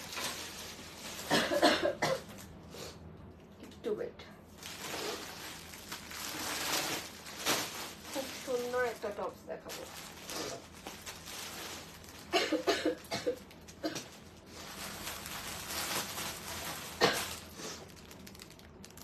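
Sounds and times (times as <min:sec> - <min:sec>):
woman coughing: 0:01.3 - 0:02.3, 0:12.3 - 0:14.1, 0:17.0 - 0:17.4.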